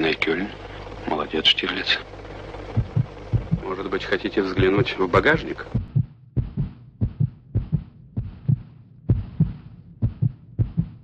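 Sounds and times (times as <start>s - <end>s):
low thumps in pairs: 2.7s - 3.6s, 4.6s - 4.9s, 5.7s - 11.0s.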